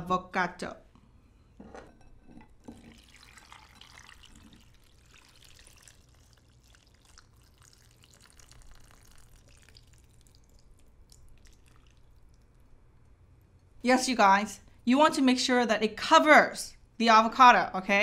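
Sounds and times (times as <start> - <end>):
liquid trickling and dripping: 2.6 - 12.8.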